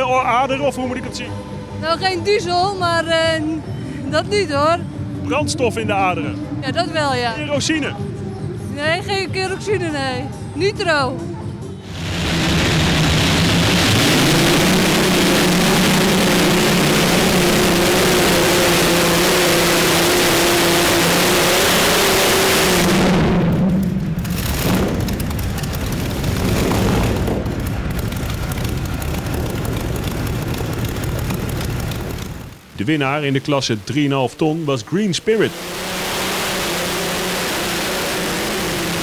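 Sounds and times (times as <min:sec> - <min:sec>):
tractor engine at high revs: 0:11.8 - 0:39.0.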